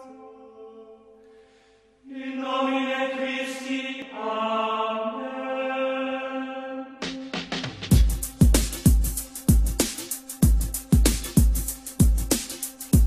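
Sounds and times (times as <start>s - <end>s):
chanted voices on held notes: 0.0s - 1.2s, 2.1s - 7.1s.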